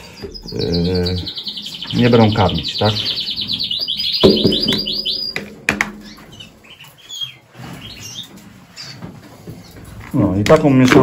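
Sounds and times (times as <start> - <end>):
canary singing trills: 0.0 - 9.0
knock: 4.2 - 6.2.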